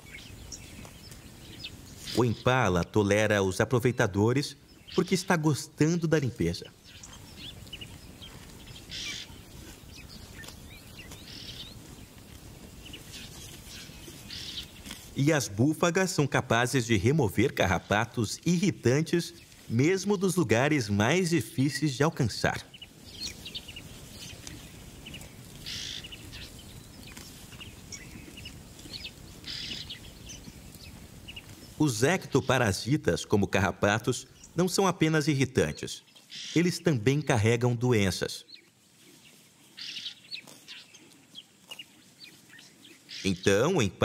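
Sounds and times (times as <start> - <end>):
birds chirping: 0.0 - 44.0
faint bird chirps: 6.8 - 9.4.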